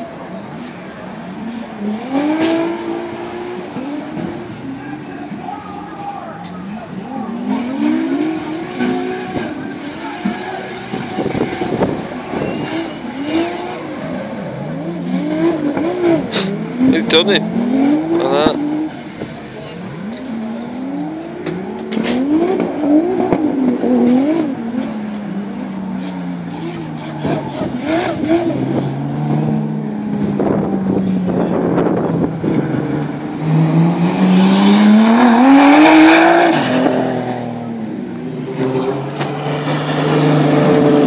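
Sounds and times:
drift car engines revving: 0.0s - 41.0s
car engine running at low revs: 13.7s - 41.0s.

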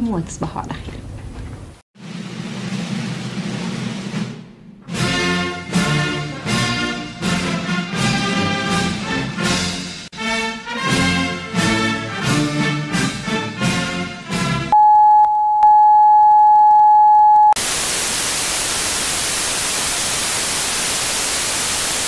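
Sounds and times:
orchestral music with brass: 4.9s - 14.7s
tv static hiss: 17.6s - 22.0s.

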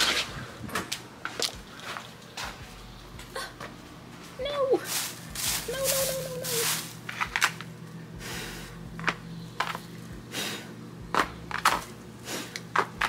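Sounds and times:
plastic bags crinkling: 4.8s - 7.9s.

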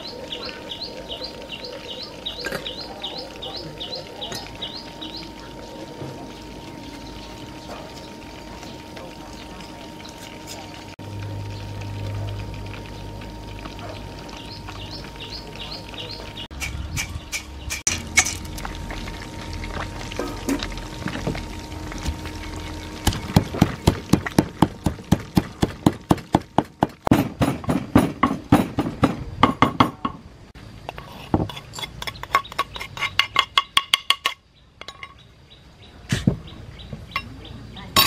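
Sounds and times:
wooden pestle pounding in mortar: 23.1s - 30.1s.

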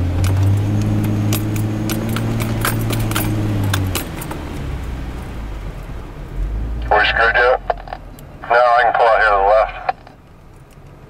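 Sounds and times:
off-road vehicle engine droning: 0.0s - 11.0s
light clinks and rattles: 0.2s - 5.3s.

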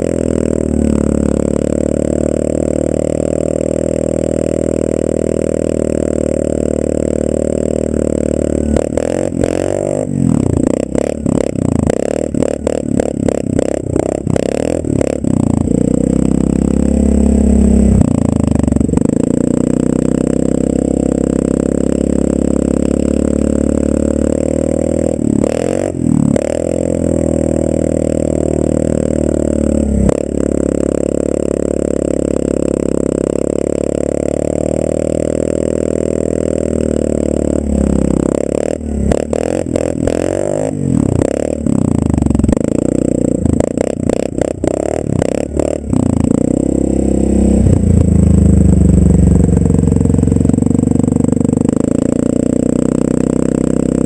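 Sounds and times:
atv engine revving: 0.0s - 54.0s.

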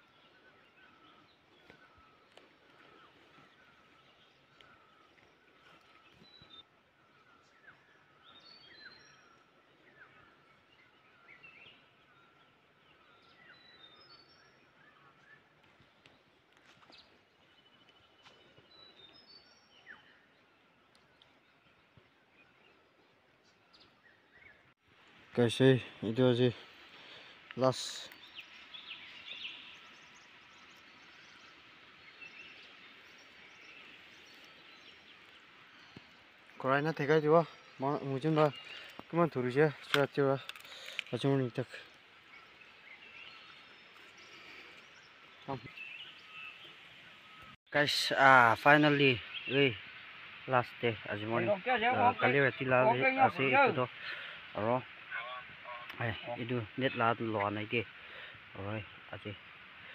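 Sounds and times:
birds chirping and whistling: 0.0s - 24.7s, 26.7s - 47.6s.

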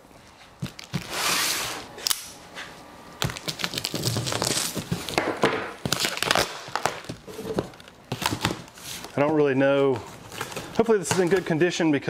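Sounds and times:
cardboard and tape crinkling: 3.2s - 11.6s.

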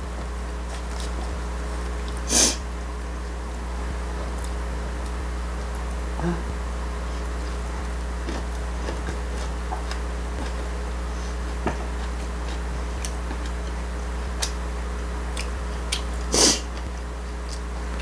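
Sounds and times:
low hum: 0.0s - 18.0s.

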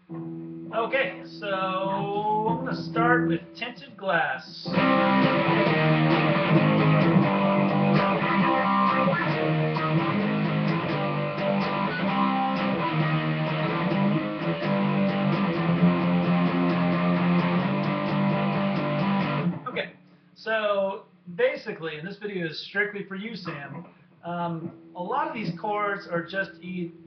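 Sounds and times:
electric guitar strumming chords: 0.0s - 3.6s, 4.7s - 19.7s.

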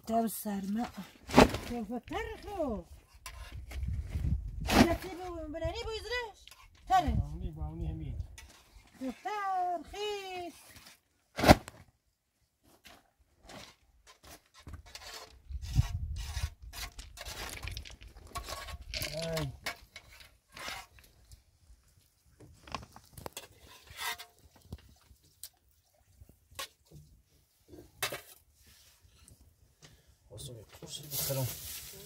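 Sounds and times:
objects rubbing and scraping: 3.0s - 5.2s, 12.9s - 21.4s, 22.6s - 25.0s.

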